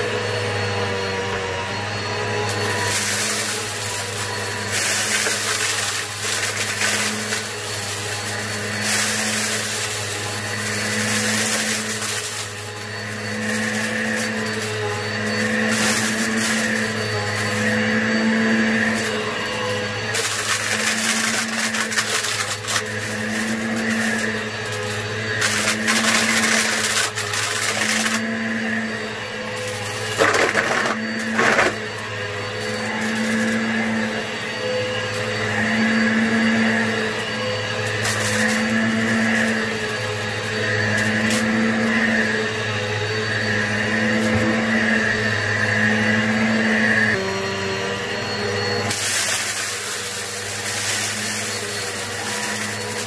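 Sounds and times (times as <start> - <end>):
vacuum cleaner on carpet: 0.0 - 53.0
debris crackling in vacuum: 2.0 - 28.8, 29.6 - 33.9, 37.8 - 42.3, 48.8 - 53.0.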